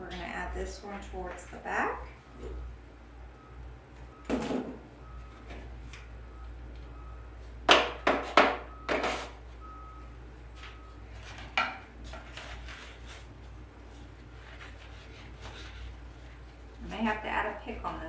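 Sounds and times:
stem rustling in wicker basket: 12.0 - 16.9.

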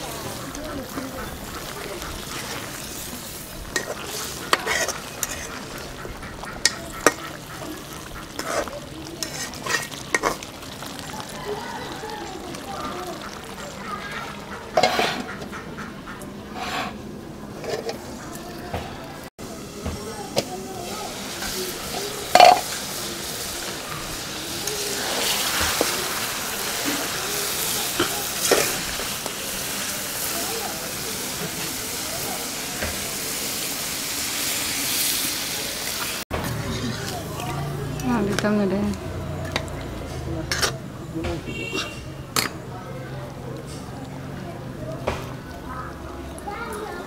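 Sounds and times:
frying sizzle: 0.0 - 47.0
metal spatula scraping pan: 0.2 - 10.5, 14.7 - 18.1, 40.4 - 40.8, 41.5 - 42.6
spatula clacking against pan: 3.7 - 10.4
pot lid clanking down: 14.8 - 15.3, 22.3 - 22.8.

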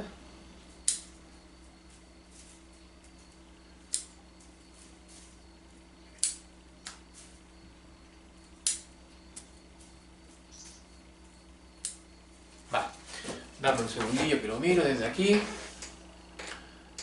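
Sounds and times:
sharp snaps of shoots cut: 8.6 - 8.9.

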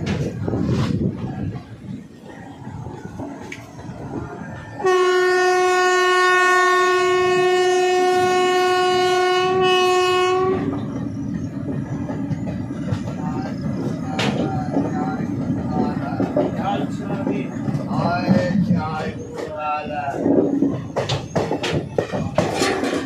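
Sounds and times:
moving train running noise: 0.0 - 23.0
train horn blast: 4.8 - 10.8.

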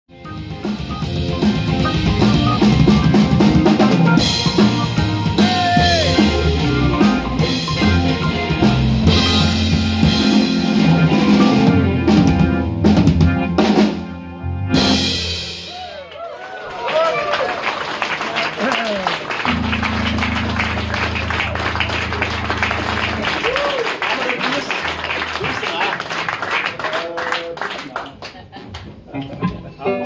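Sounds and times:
electric guitar: 0.1 - 15.3, 19.4 - 24.0, 28.9 - 30.0
electric bass: 0.1 - 15.6, 19.5 - 23.8
drum kit: 0.1 - 16.0, 19.3 - 26.6.

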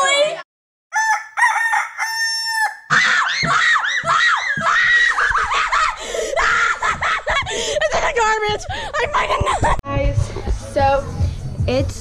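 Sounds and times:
girls screaming: 2.9 - 7.5.

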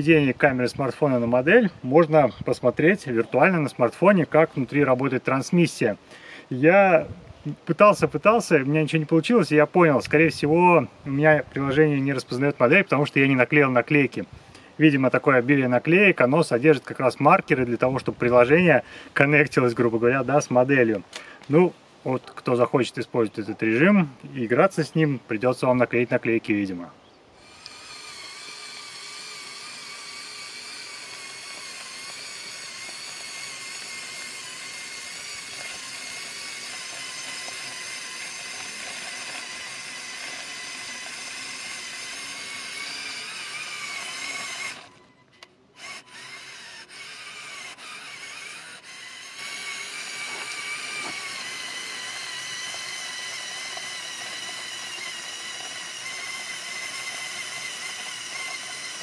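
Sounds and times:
toy truck motors whining: 0.0 - 6.1, 27.4 - 59.0.

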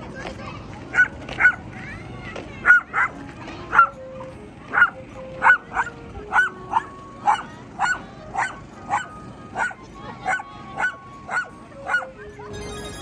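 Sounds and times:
dog barking: 0.9 - 1.6, 2.6 - 4.0, 4.7 - 12.1.

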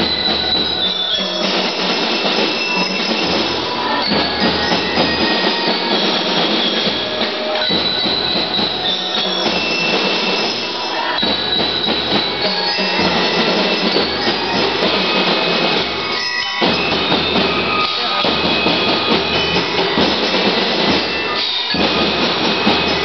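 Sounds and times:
bell lyres melody: 0.0 - 23.0
marching drums: 0.0 - 23.0.

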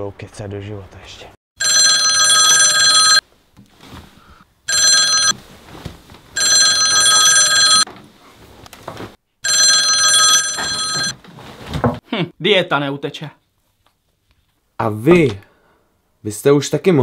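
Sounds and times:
mobile phone alarm tone: 1.6 - 3.2, 4.7 - 5.4, 6.4 - 7.9, 9.4 - 11.2.

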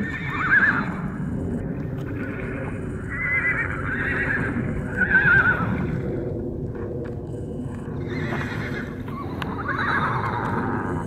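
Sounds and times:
horses squealing: 0.0 - 1.2, 1.9 - 6.2, 7.9 - 11.0
hooves scuffling on rocky ground: 1.8 - 2.7.

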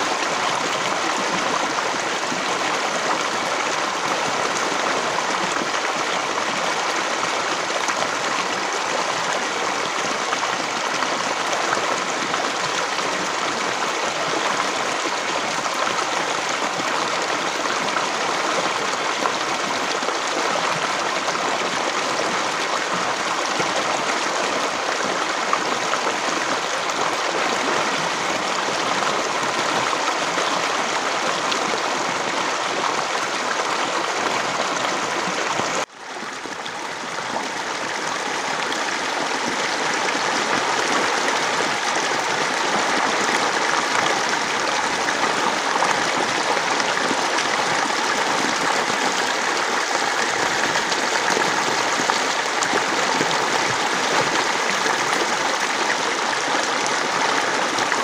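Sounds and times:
river water rushing: 0.0 - 58.0.

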